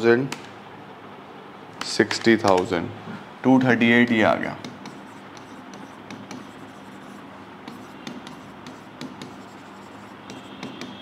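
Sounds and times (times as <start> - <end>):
stylus tapping and scraping screen: 4.1 - 11.0.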